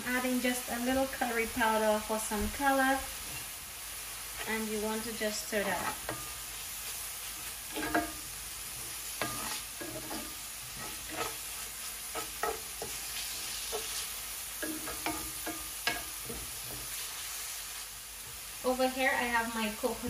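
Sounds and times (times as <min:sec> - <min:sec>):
vegetables sizzling in oil: 0:00.0 - 0:20.0
wooden spoon scraping skillet: 0:04.2 - 0:17.6.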